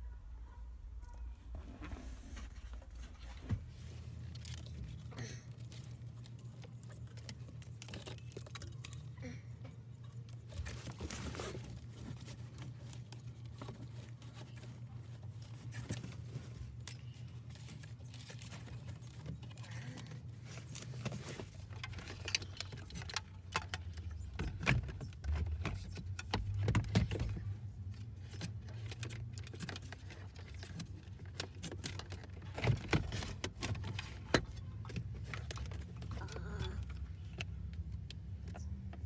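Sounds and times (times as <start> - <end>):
wires and connectors rattling: 1.0 - 39.0.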